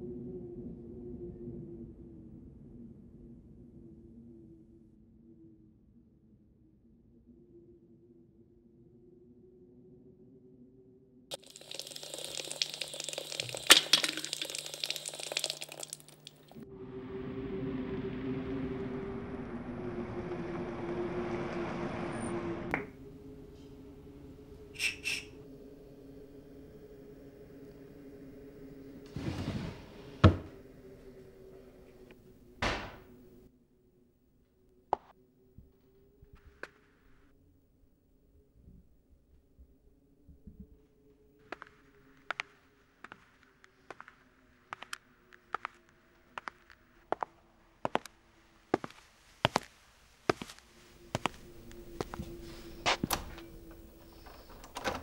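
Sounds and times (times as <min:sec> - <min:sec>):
dense crackling and popping: 0:11.3 - 0:16.6
low hum: 0:16.5 - 0:29.1
drawer sliding shut: 0:29.1 - 0:30.6.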